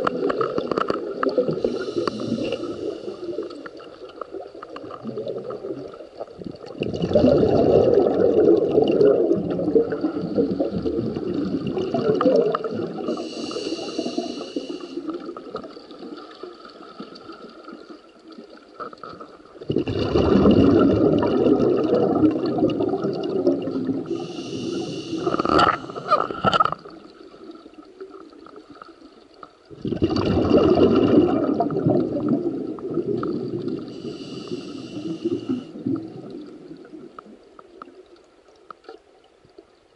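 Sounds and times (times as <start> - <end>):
underwater exhale bubbling: 0.0 - 28.8, 29.7 - 38.1
regulator hissing inhalations: 1.6 - 3.7, 13.0 - 15.3, 24.0 - 26.3, 33.9 - 35.8.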